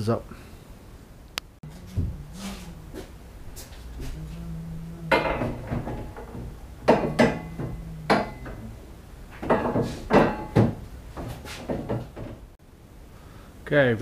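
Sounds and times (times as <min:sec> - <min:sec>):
metal bar clanking against tubes: 0:05.0 - 0:08.7, 0:09.4 - 0:10.8.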